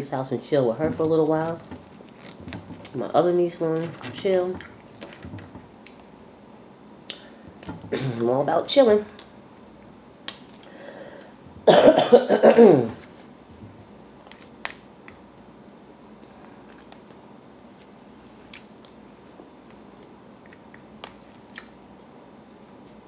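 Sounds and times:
person coughing: 7.9 - 8.3, 11.6 - 13.0.

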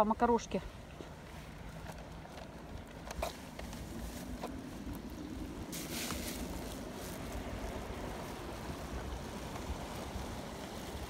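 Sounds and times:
wind rumbling on microphone: 0.6 - 11.0
brief rustle: 5.7 - 6.7.

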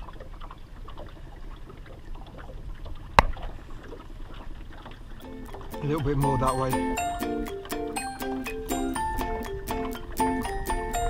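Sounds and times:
water lapping against boat hull: 0.0 - 5.8.

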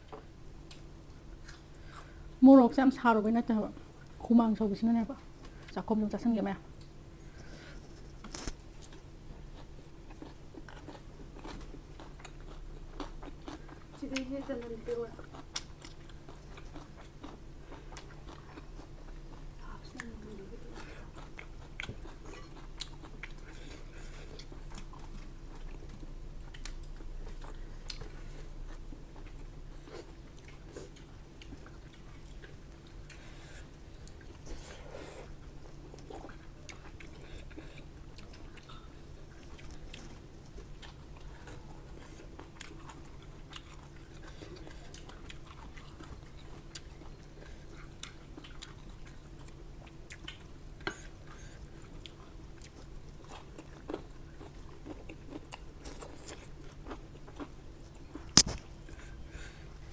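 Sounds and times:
steady low hum: 0.0 - 59.9
close chewing and biting: 7.7 - 59.9
food crunches: 53.2 - 58.7.

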